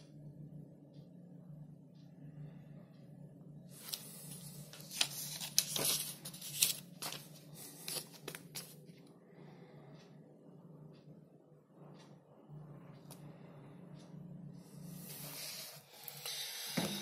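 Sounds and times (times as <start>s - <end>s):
faint low hum: 0.0s - 17.0s
paper pages turning: 3.8s - 8.8s.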